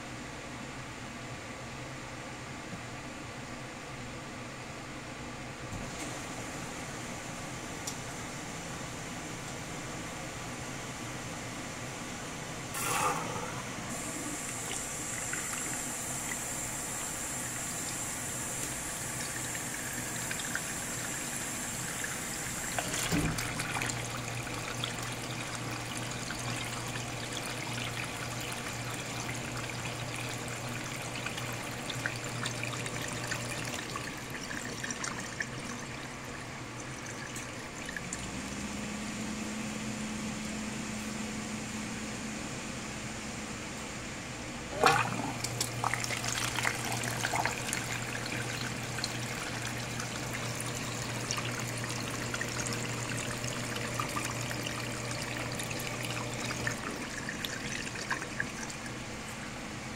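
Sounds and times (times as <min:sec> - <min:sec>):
low machine hum: 0:00.0 - 0:59.9
water rushing and swirling: 0:44.8 - 0:58.9.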